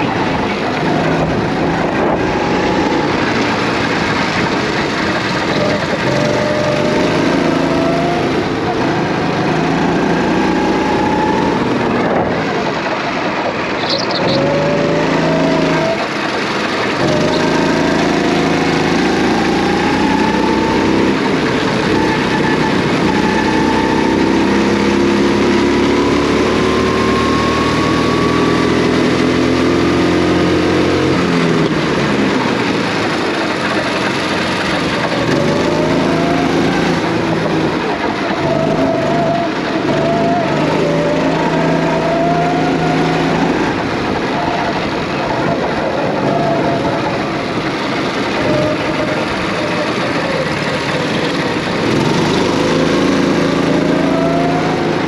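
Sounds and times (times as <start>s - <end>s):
go-kart engine running hard: 0.0s - 55.0s.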